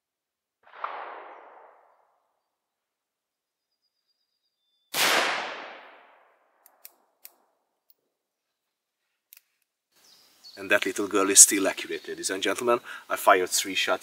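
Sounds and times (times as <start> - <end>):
revolver gunshots: 0.6 - 2.0, 4.9 - 6.2.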